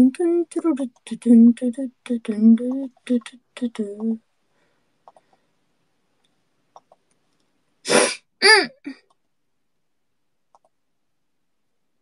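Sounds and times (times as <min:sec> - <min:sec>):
person sneezing: 0:07.9 - 0:09.0.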